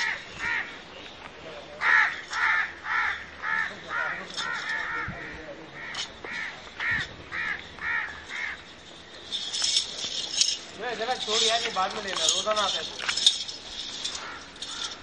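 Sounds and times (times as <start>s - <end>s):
crow cawing: 0.0s - 0.8s, 1.8s - 8.6s, 14.1s - 15.0s.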